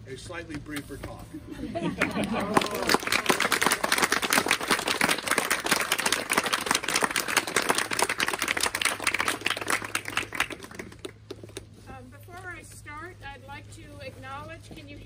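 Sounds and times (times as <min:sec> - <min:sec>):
small crowd applauding: 0:01.9 - 0:11.5.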